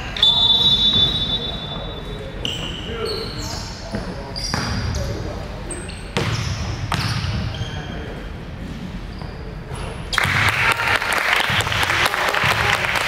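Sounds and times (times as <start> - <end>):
crowd applauding: 10.2 - 13.0.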